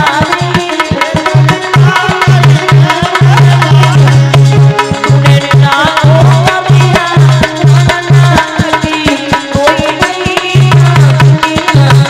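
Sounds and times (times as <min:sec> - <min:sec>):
fast hand-drum beat: 0:00.0 - 0:12.0
wavering melody line: 0:01.2 - 0:07.8.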